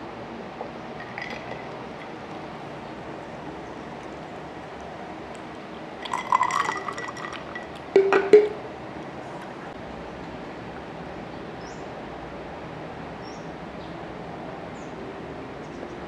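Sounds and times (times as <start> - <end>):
drink pouring into glass: 1.0 - 2.4, 6.0 - 8.6
glass knocking on glass: 8.0 - 8.6.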